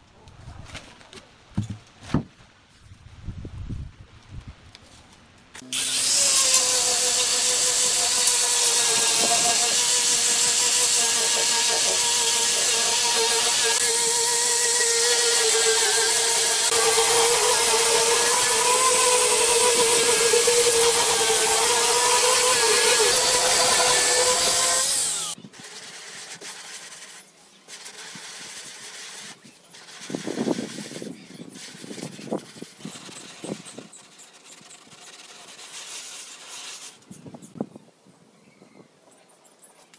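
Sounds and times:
angle grinder whine: 5.6 - 25.4
sanding disc rasping on wood: 5.7 - 37.0.

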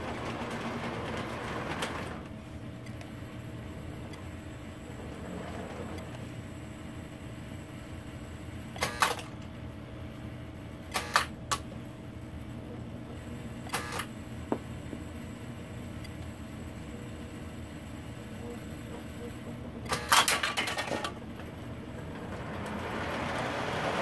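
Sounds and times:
low electric hum: 0.0 - 24.0.

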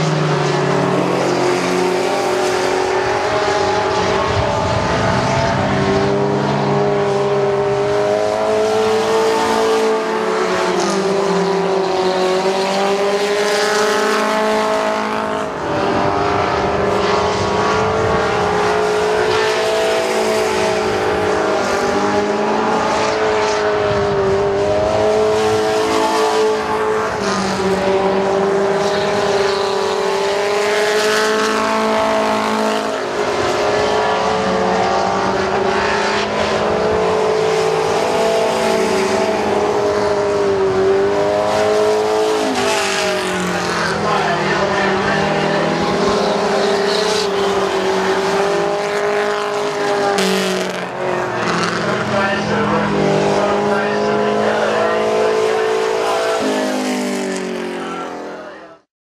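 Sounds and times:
race truck engines: 0.0 - 58.9.

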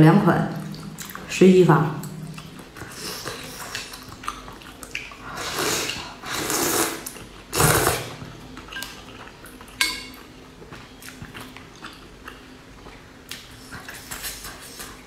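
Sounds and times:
person blowing on soup: 5.4 - 8.2
utensils clinking on metal pot: 9.8 - 10.2.

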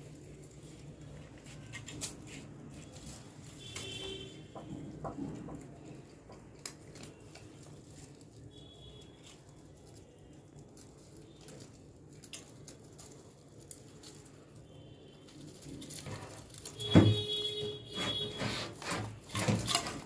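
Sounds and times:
rabbits chewing greens: 0.0 - 20.0.

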